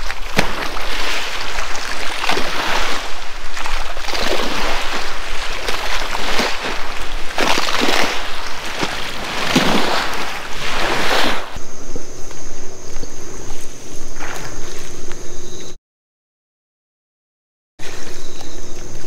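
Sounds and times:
water sloshing and splashing: 0.0s - 11.6s.

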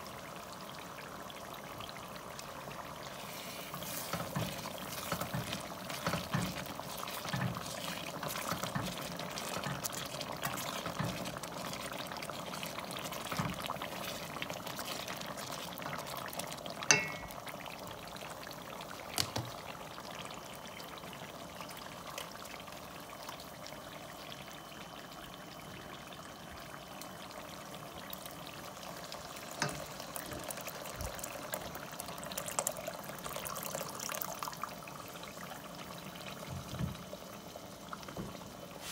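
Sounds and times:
thick sauce bubbling: 0.0s - 38.9s
wooden spoon stirring: 3.3s - 17.3s.

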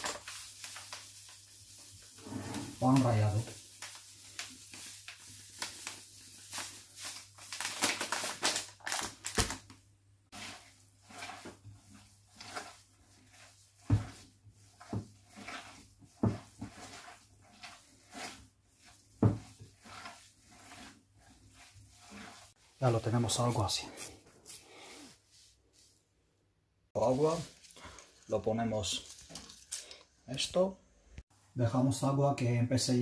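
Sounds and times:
hands kneading minced meat: 0.0s - 7.5s, 10.3s - 25.9s.

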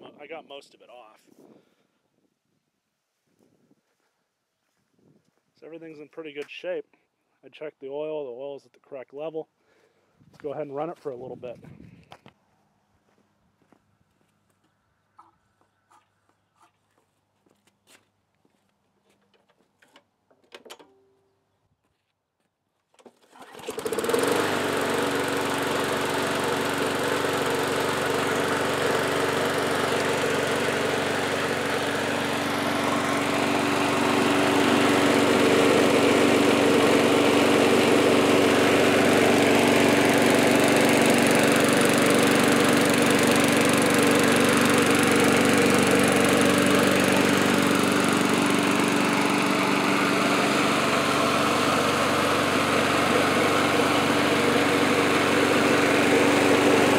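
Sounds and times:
lawn mower engine running: 23.0s - 56.9s.

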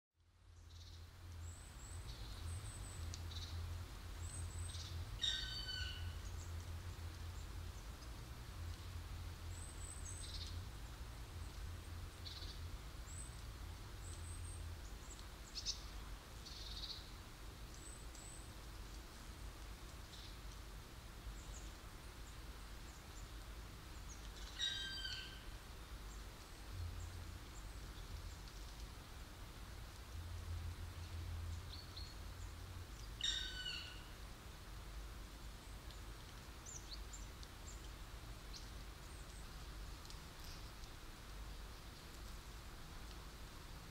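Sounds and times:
small birds chirping: 0.5s - 3.6s, 11.4s - 19.0s, 21.3s - 25.4s, 31.0s - 34.1s, 35.6s - 41.0s
woodpecker calling: 5.2s - 6.1s, 24.5s - 25.4s, 33.2s - 34.1s.

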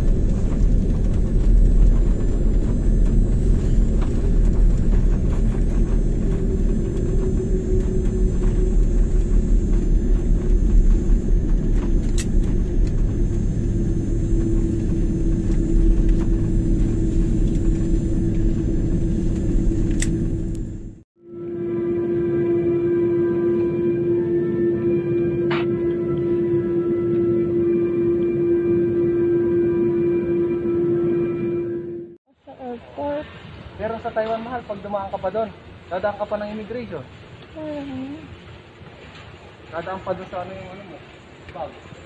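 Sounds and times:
airliner engine rumble: 0.0s - 32.2s
steady cabin hum: 0.0s - 32.2s.

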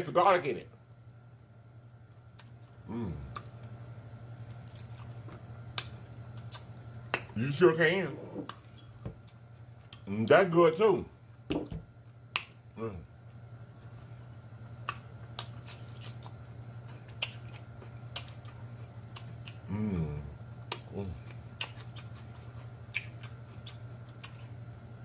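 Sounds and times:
steady low hum: 0.0s - 25.0s
person humming mmm: 2.8s - 3.5s, 19.6s - 21.2s
lip smacks while chewing: 21.5s - 24.6s.

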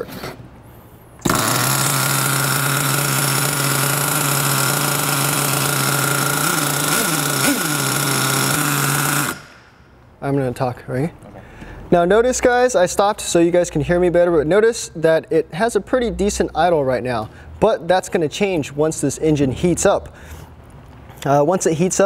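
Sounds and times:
model car engine idling: 1.2s - 9.4s
engine revving blips: 1.2s - 9.6s.

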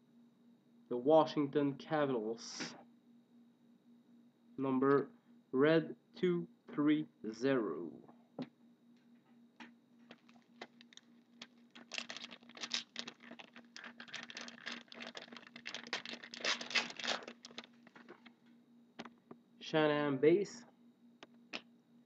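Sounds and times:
card pack wrapper crinkling: 10.1s - 18.3s.

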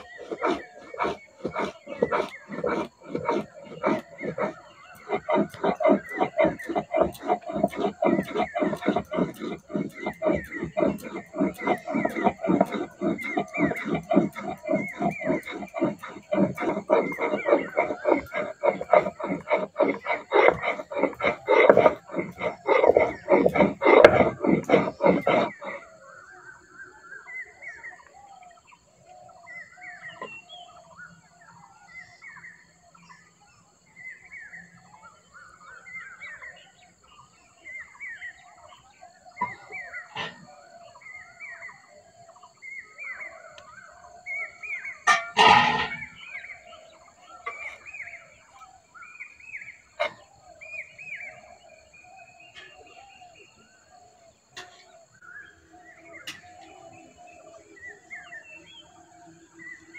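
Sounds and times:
birds chirping: 0.0s - 59.9s.

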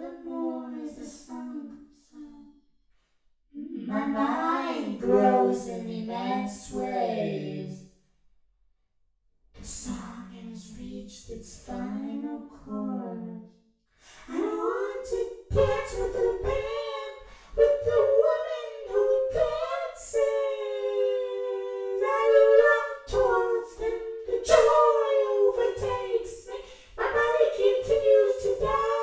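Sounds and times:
person singing unaccompanied: 14.3s - 29.0s.

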